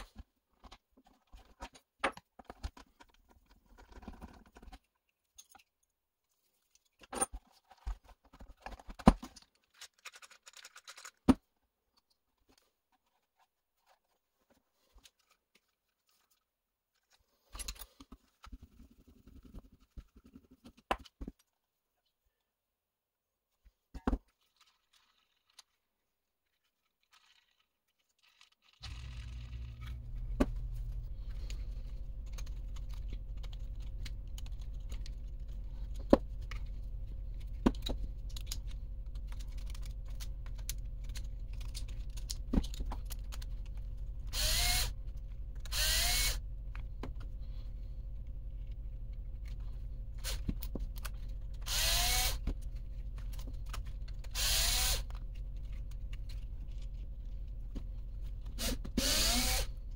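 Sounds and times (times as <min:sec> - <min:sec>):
clicks of small parts and tools: 0:00.0 - 0:05.9, 0:06.7 - 0:13.2, 0:14.9 - 0:21.5, 0:26.6 - 0:47.3
steady low hum: 0:28.8 - 0:59.9
power screwdriver motor whine: 0:44.3 - 0:45.0, 0:45.6 - 0:46.4, 0:51.6 - 0:52.4, 0:54.3 - 0:55.2, 0:58.6 - 0:59.7.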